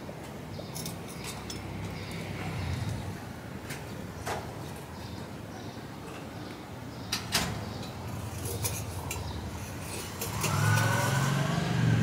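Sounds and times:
vehicle engine accelerating: 0:10.3 - 0:12.0.

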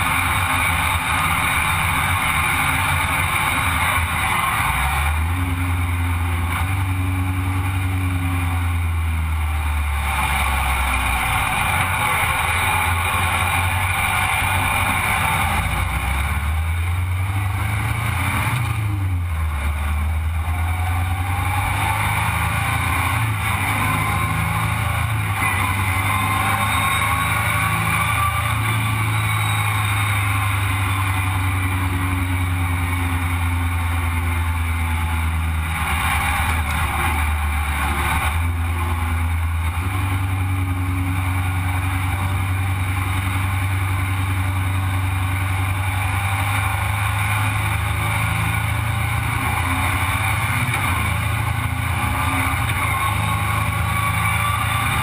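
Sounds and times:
engine running: 0:00.0 - 0:55.0.

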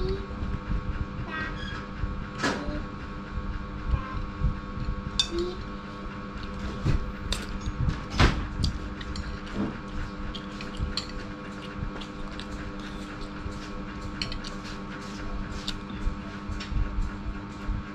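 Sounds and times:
steady hum: 0:00.0 - 0:17.9
cutlery clinking in a bowl: 0:14.2 - 0:14.6.

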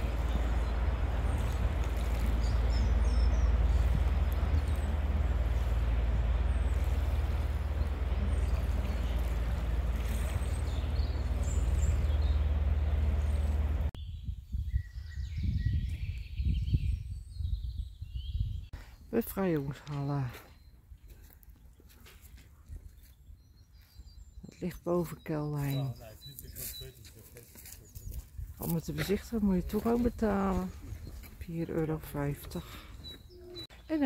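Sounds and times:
rushing river water: 0:00.0 - 0:13.9
ship engines droning: 0:00.0 - 0:13.9.

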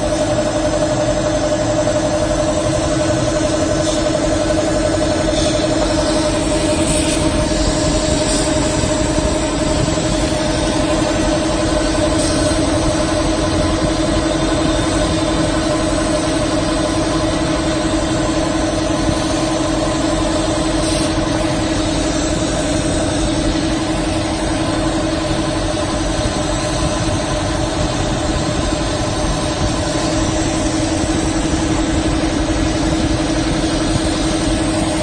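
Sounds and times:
fan and air rush: 0:00.0 - 0:35.0.

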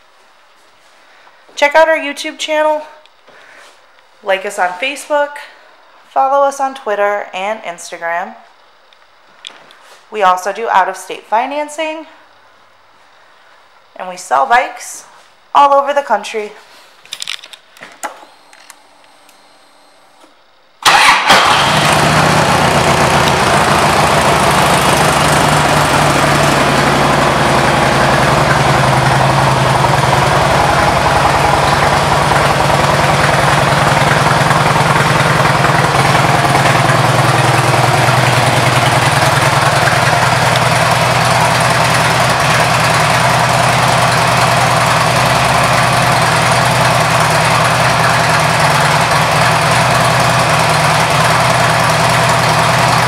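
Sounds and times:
motorcycle engine starting and idling: 0:17.2 - 0:53.0.

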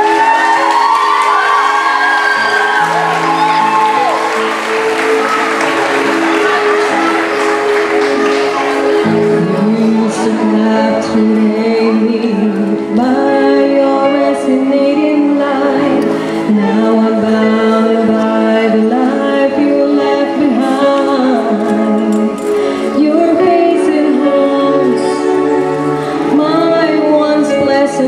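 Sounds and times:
sustained music accompaniment: 0:00.0 - 0:28.0
woman singing into microphone: 0:09.2 - 0:28.0.

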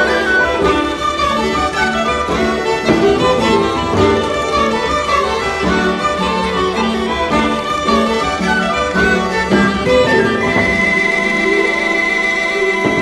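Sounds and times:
fiddle-led instrumental tune: 0:00.0 - 0:13.0.

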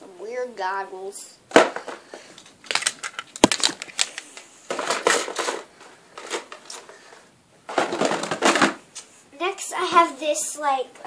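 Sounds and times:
plastic bins rustling and clattering: 0:01.5 - 0:09.1.

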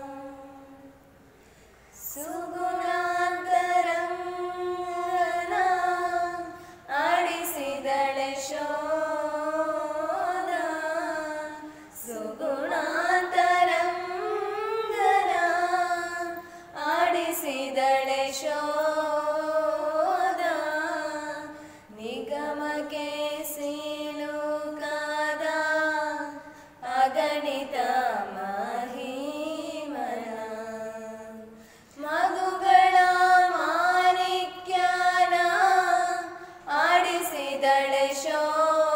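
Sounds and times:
women singing slow song: 0:00.0 - 0:38.9.

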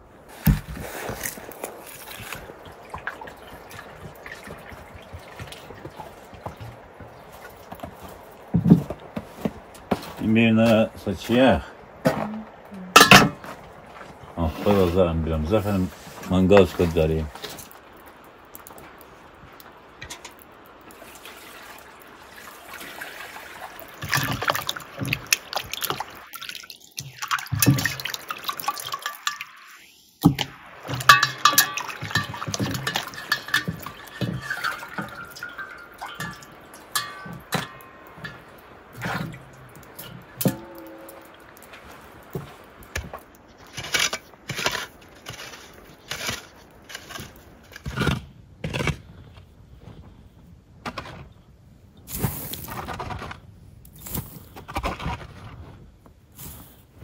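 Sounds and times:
water sloshing in metal basin: 0:00.3 - 0:17.9, 0:18.6 - 0:47.9
shovel scraping snow: 0:43.6 - 0:49.1.

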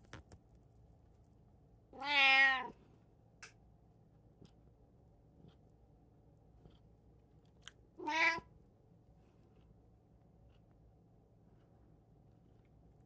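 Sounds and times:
cat meowing: 0:02.0 - 0:02.8, 0:08.0 - 0:08.5.

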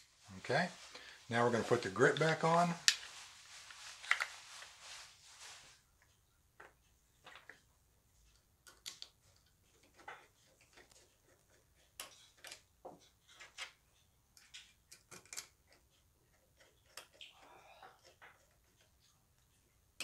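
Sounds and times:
small metal clicks and taps: 0:08.2 - 0:11.1, 0:11.9 - 0:18.8.

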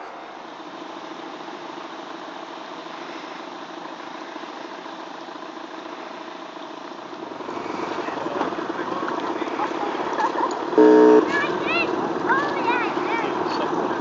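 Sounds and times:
model boat motor running: 0:05.0 - 0:14.0.

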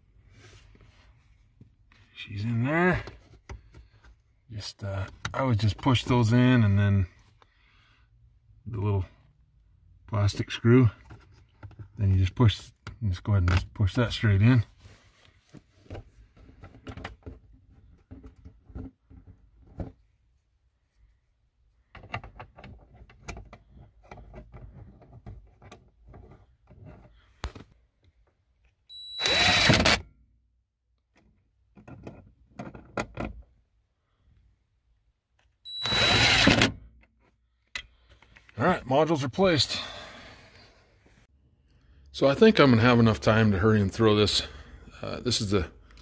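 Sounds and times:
cordless power driver whining: 0:29.0 - 0:30.0, 0:35.7 - 0:36.8.

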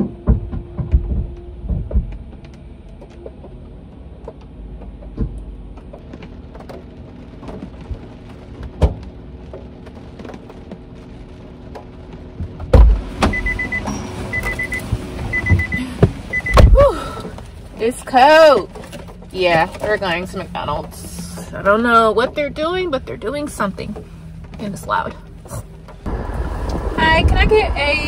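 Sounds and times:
rain tapping on car roof: 0:00.0 - 0:28.0
car door opening thump: 0:12.7 - 0:13.4
door warning chime beeping: 0:13.3 - 0:16.6.

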